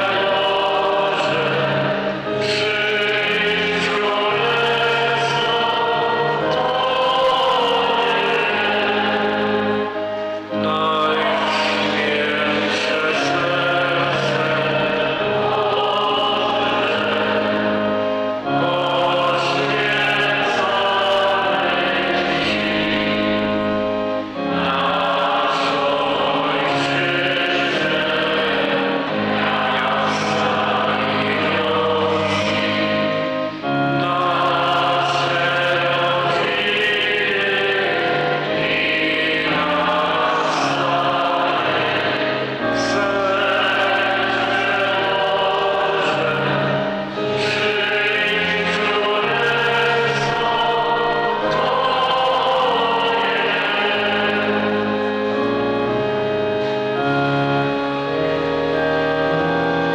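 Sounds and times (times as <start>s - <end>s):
choir singing a hymn: 0.0s - 59.9s.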